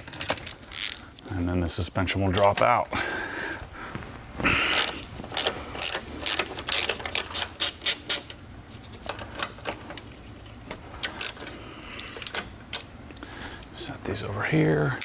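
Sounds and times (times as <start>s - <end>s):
hand ratchet clicking: 4.7s - 8.4s.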